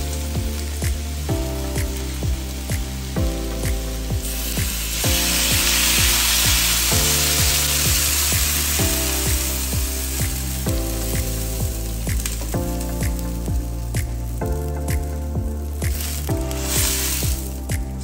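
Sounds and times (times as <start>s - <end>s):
background music with steady beat: 0.0s - 18.0s
water poured into hot wok: 3.8s - 12.5s, 15.9s - 17.7s.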